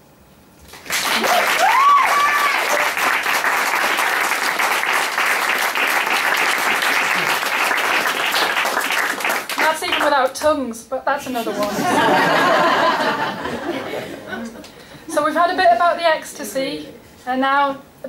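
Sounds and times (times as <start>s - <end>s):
audience applauding: 0.7s - 10.2s
person whooping: 1.2s - 3.0s.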